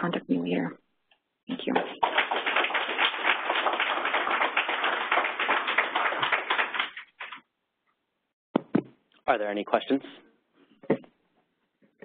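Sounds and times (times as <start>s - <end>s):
audience applauding: 1.5s - 7.4s.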